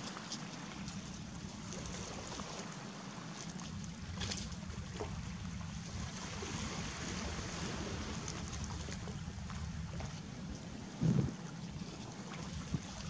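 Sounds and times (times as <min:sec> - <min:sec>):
wind rumbling on microphone: 0:03.8 - 0:13.0.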